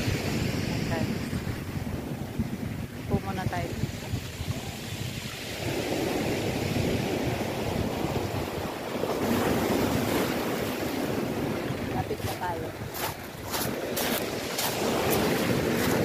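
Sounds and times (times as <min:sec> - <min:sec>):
wind buffeting microphone: 0:00.0 - 0:16.0
waves breaking on shingle: 0:09.2 - 0:16.0.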